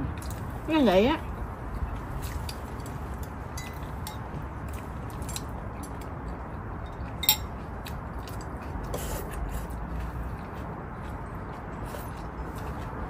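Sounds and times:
low background rumble: 0.0 - 13.0
utensils clinking on ceramic bowls: 3.6 - 4.3, 6.8 - 7.6.

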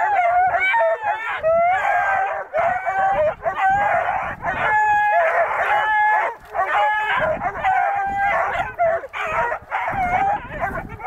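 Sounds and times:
puppies baying: 0.0 - 11.0.

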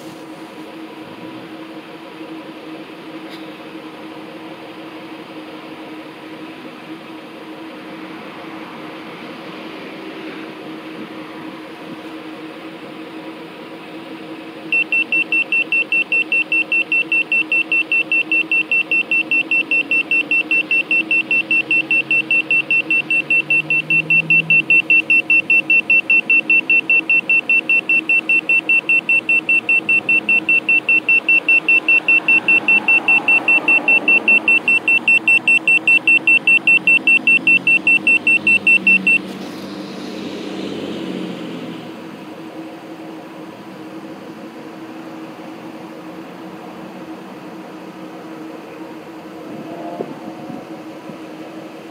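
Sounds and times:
car engine idling: 14.6 - 40.3
rapid high alarm beeps: 14.7 - 39.2.

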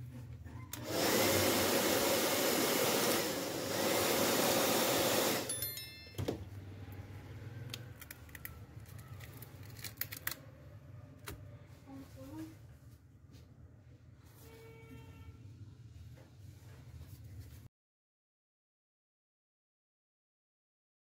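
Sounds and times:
heat gun blowing: 0.8 - 5.6.

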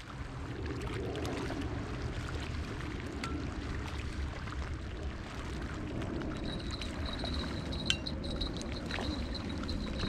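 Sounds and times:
wind buffeting microphone: 0.1 - 10.0
thin high-pitched tone: 6.4 - 10.0.

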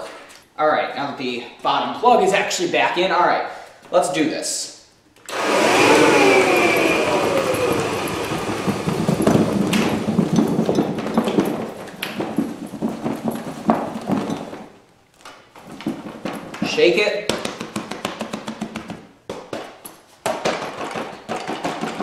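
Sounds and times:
vacuum motor winding down: 5.3 - 10.4
dust bag rattling and flapping: 5.9 - 14.8, 15.4 - 18.8.

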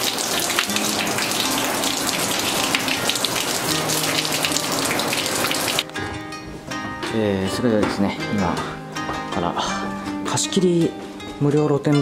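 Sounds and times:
water pouring into bathtub: 0.0 - 5.9.

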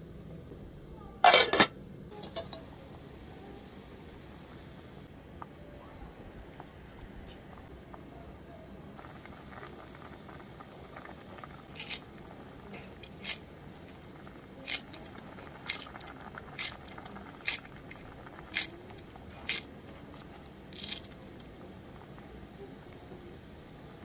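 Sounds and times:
stew bubbling in a pot: 2.1 - 24.0
scissors snipping onion stalk: 14.6 - 14.8, 18.5 - 18.7.

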